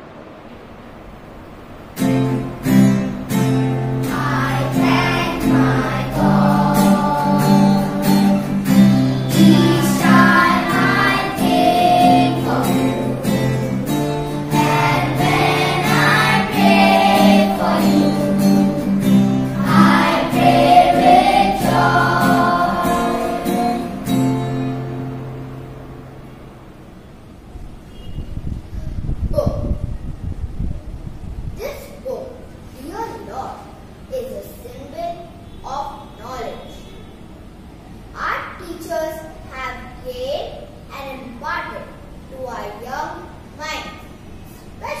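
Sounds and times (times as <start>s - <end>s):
instrumental accompaniment: 2.0s - 26.6s
children singing: 4.0s - 24.2s.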